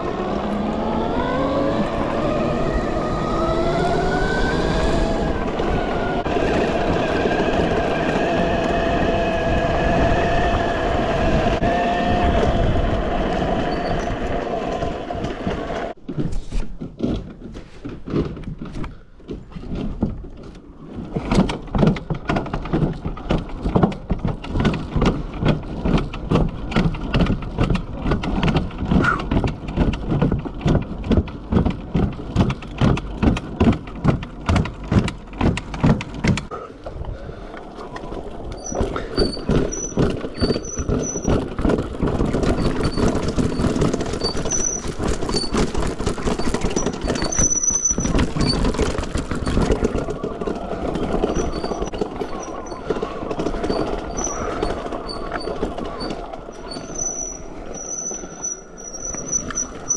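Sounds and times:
wind and tyre noise: 0:00.0 - 0:59.9
knocking and rattling: 0:14.7 - 0:36.5, 0:38.5 - 0:58.3.

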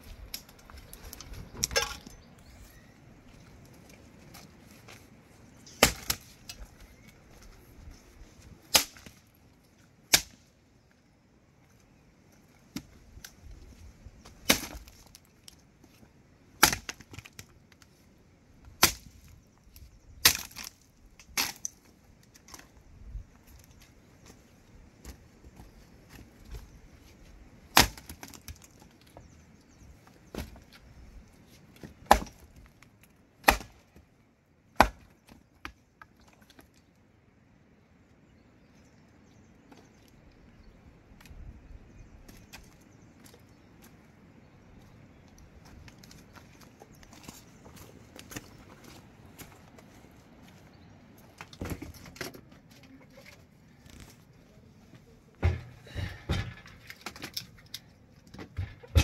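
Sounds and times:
dry branches being chopped: 0:05.7 - 0:07.2, 0:08.6 - 0:09.3, 0:10.1 - 0:10.5, 0:14.2 - 0:15.3, 0:16.6 - 0:17.8, 0:18.6 - 0:19.3, 0:20.2 - 0:21.8, 0:27.7 - 0:28.9, 0:31.8 - 0:32.7, 0:33.4 - 0:34.1, 0:34.7 - 0:35.8.

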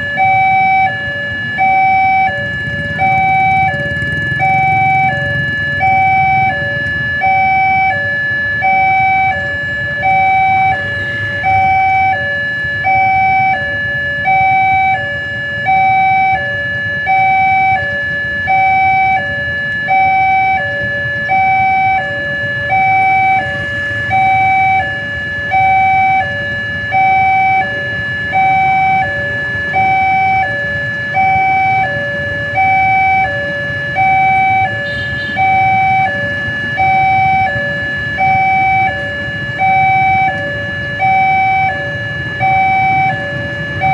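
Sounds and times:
level-crossing two-tone alarm: 0:00.0 - 0:43.9
low rumble of traffic: 0:00.0 - 0:43.9.

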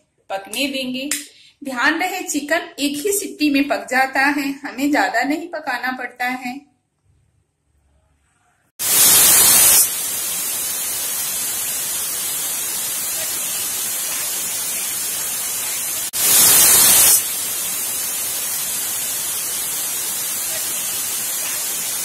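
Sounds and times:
pressure cooker whistle: 0:08.8 - 0:14.6, 0:15.9 - 0:19.4
steam hissing from pressure cooker: 0:08.8 - 0:22.0.

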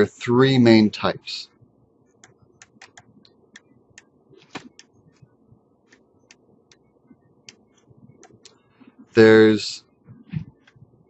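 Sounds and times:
stylus tapping and writing on tablet: 0:01.6 - 0:09.1, 0:10.0 - 0:11.0.

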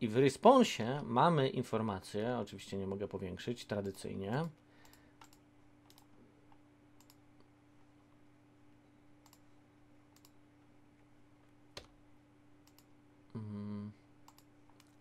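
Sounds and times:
low electrical hum: 0:00.0 - 0:15.0
computer mouse clicks: 0:03.8 - 0:07.2, 0:09.2 - 0:09.5, 0:10.1 - 0:10.4, 0:12.6 - 0:12.9, 0:14.2 - 0:15.0.

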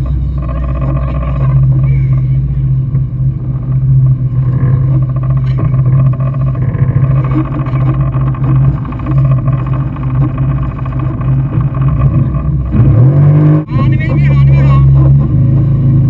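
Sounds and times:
jet ski engine idling: 0:00.0 - 0:12.8.

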